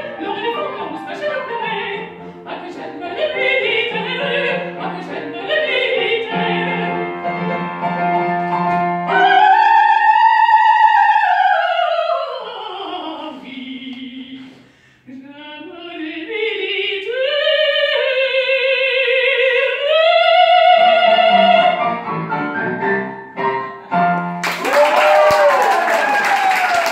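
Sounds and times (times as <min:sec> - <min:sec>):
woman singing opera: 0:00.0 - 0:07.2, 0:09.1 - 0:21.8
piano accompaniment: 0:00.0 - 0:11.4, 0:19.7 - 0:25.7.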